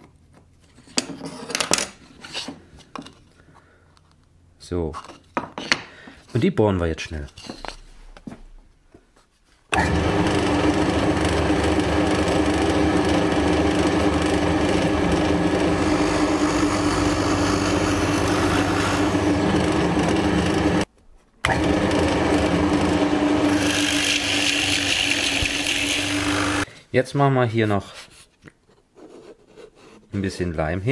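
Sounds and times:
drill press motor humming: 0:09.7 - 0:26.7
drill bit rasping into wood: 0:13.8 - 0:20.8, 0:21.5 - 0:26.6.

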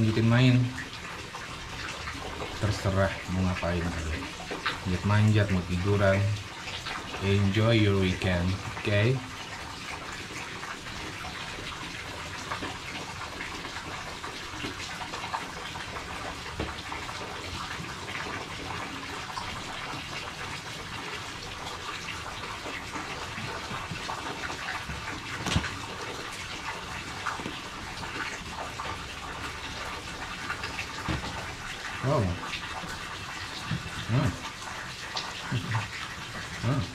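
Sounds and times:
tap running into a sink: 0:10.0 - 0:20.3, 0:21.6 - 0:36.6.

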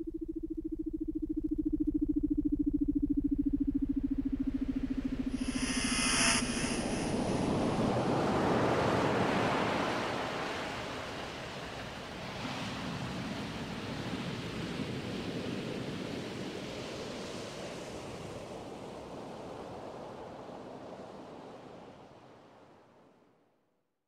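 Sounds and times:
ocean surf noise: 0:04.7 - 0:22.1.

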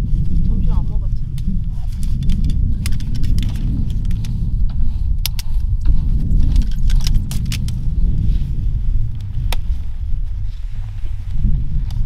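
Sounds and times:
wind buffeting microphone: 0:00.0 - 0:12.0
camping gear clicking and clinking: 0:01.4 - 0:07.8.

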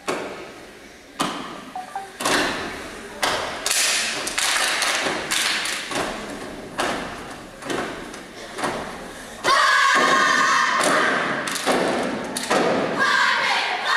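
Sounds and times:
stomping and clapping on wooden stage: 0:02.2 - 0:13.0.

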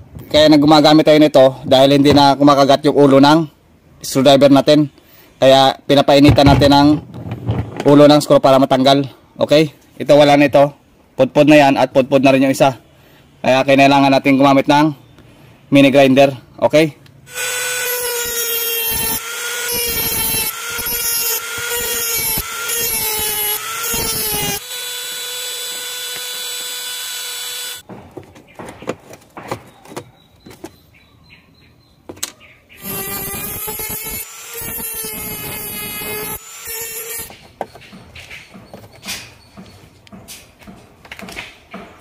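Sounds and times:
rotary tool cut-off disc whining: 0:17.3 - 0:27.8, 0:32.8 - 0:37.3.

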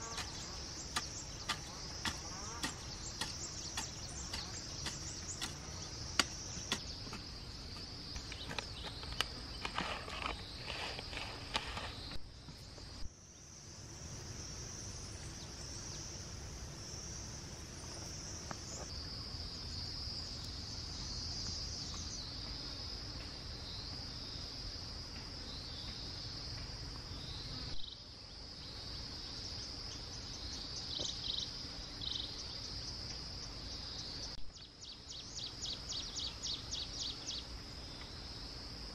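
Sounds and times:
insects chirping and trilling: 0:00.0 - 0:38.9.

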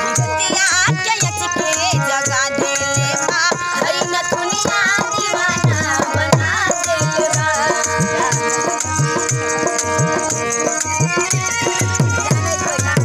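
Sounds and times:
woman singing: 0:00.0 - 0:09.3
dholak drum beat: 0:00.0 - 0:13.0
harmonium chords: 0:00.0 - 0:13.0.

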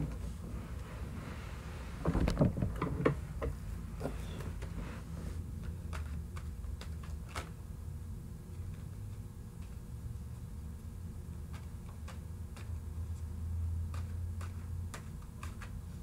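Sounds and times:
handling knocks and rustles: 0:02.0 - 0:06.5.

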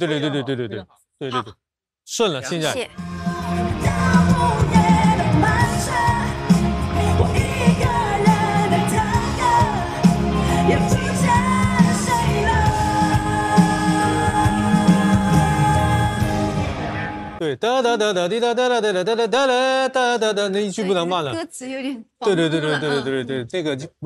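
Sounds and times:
woman singing: 0:02.6 - 0:16.6, 0:20.8 - 0:23.1
band with bass and drums: 0:03.4 - 0:17.4.

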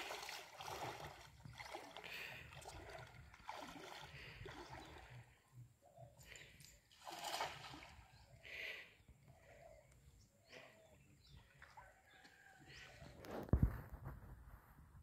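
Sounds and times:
water sloshing from wading: 0:00.0 - 0:05.6, 0:06.7 - 0:08.4
distant bird calls: 0:04.1 - 0:06.9, 0:07.7 - 0:13.3
branch dragged through water: 0:06.9 - 0:08.0.

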